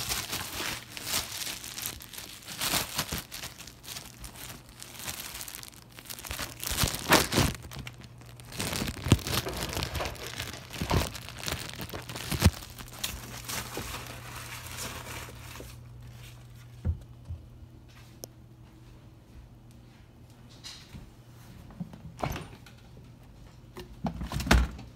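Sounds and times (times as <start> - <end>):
plastic bag crinkling: 0.0 - 16.4
steady low hum: 0.0 - 24.0.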